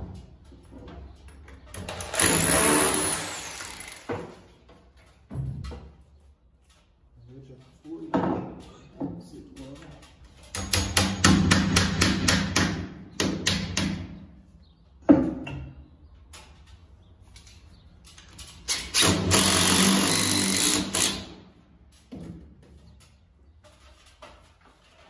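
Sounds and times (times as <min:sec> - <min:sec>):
hammer tapping a screw: 0:10.5 - 0:14.0.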